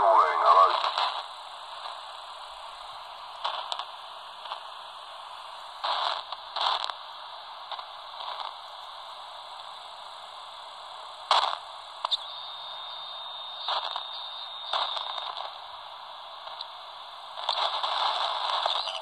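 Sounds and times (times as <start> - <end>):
radio receiver static: 0.0 - 4.7, 5.8 - 7.0, 11.3 - 19.0
crackling bursts: 0.0 - 19.0
thin steady whistle: 12.1 - 15.4.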